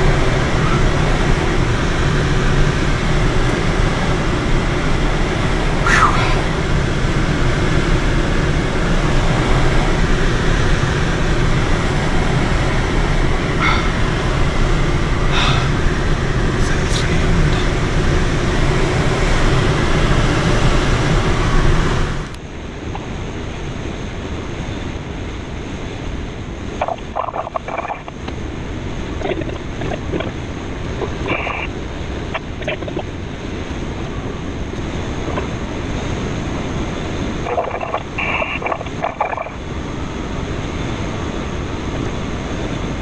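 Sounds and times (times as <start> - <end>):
airflow rushing around cockpit: 0.0 - 43.0
faint high whistle: 5.8 - 6.4.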